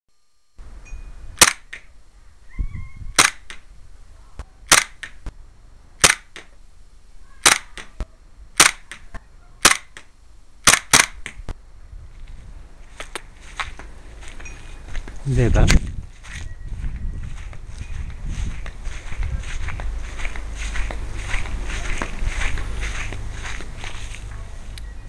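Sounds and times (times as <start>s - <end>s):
airsoft pistol shots: 1.4s - 1.9s, 3.2s - 3.6s, 4.7s - 5.2s, 6.0s - 6.5s, 7.4s - 7.9s, 8.6s - 9.0s, 9.6s - 11.4s.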